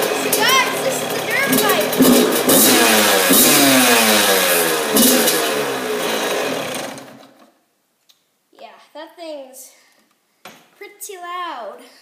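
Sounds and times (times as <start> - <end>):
dirt bike engine revving: 0.0 - 7.3.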